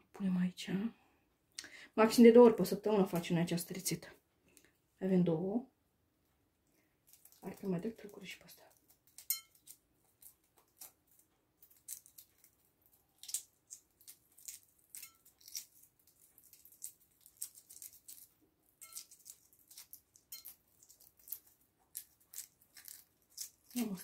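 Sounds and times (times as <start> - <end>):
egg shell crackling: 7.0 - 24.0.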